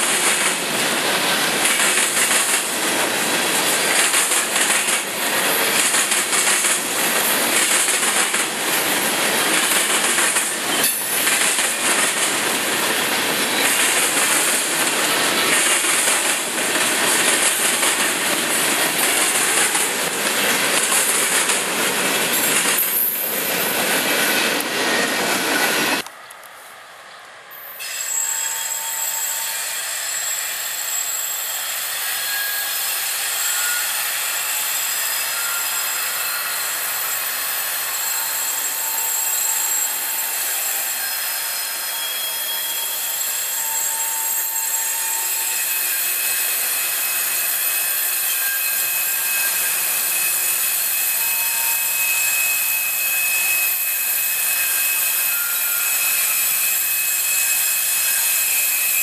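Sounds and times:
freight train wheels rattling on rail: 0:00.0 - 0:26.3.

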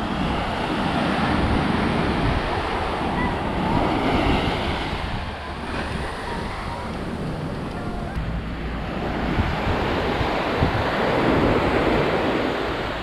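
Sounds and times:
sea surf breaking on beach: 0:00.0 - 0:13.0.

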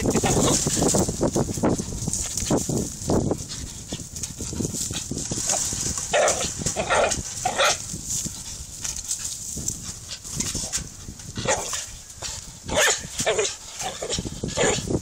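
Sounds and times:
dog barking: 0:06.1 - 0:07.8, 0:12.7 - 0:14.8.

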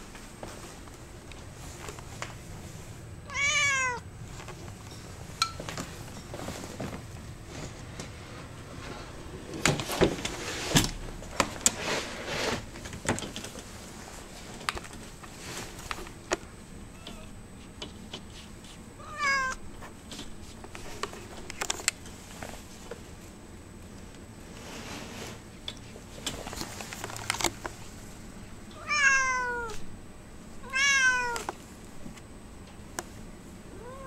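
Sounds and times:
cat meowing: 0:03.3 - 0:04.0, 0:16.9 - 0:17.3, 0:19.0 - 0:19.6, 0:28.8 - 0:29.8, 0:30.6 - 0:31.5, 0:33.7 - 0:34.0.

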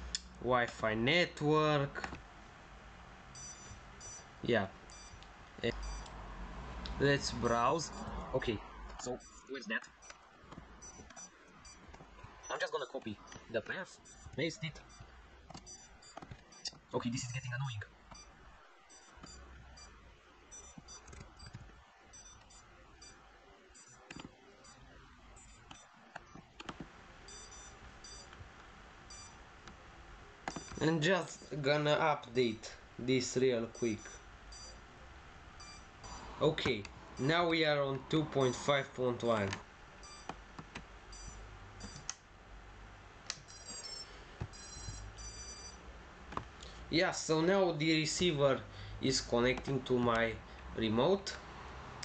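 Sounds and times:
low steady hum: 0:00.0 - 0:52.0
high-pitched electronic beeping: 0:03.3 - 0:06.2, 0:07.2 - 0:08.3, 0:09.0 - 0:10.2, 0:10.8 - 0:26.5, 0:27.3 - 0:28.4, 0:29.1 - 0:29.4, 0:30.5 - 0:31.5, 0:33.7 - 0:34.8, 0:35.6 - 0:36.5, 0:37.2 - 0:37.5, 0:38.3 - 0:38.8, 0:40.0 - 0:40.3, 0:41.1 - 0:42.1, 0:43.4 - 0:45.8
soft clicks: 0:39.4 - 0:42.2.

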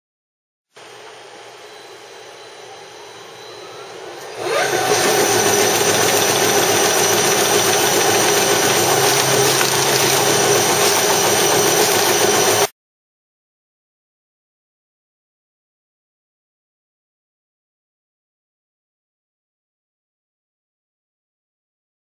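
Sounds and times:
sorting machine running: 0:02.6 - 0:12.7.

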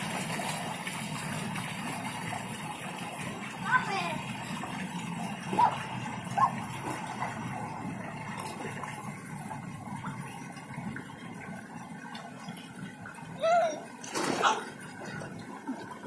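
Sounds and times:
children splashing in pool: 0:13.4 - 0:15.8.

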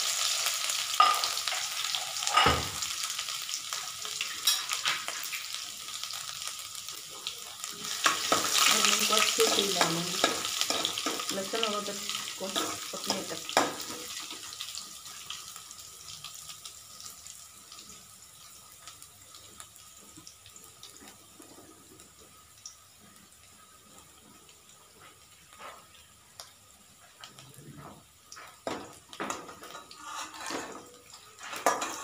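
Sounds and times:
garlic sizzling in hot oil: 0:00.0 - 0:32.0
metal ladle scraping a pan: 0:29.6 - 0:32.0.

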